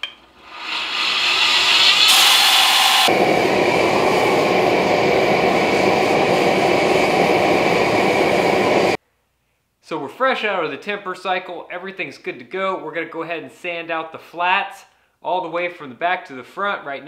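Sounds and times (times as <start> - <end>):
belt grinder grinding steel: 0.4 - 3.1
gas forge burner rushing: 0.4 - 9.0.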